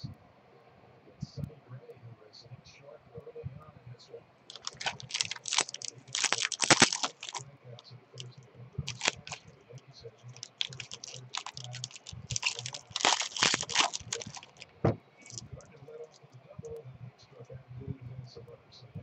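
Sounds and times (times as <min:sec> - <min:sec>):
foil wrapper tearing and crinkling: 0:04.5 - 0:07.4, 0:08.9 - 0:09.4, 0:10.3 - 0:14.6.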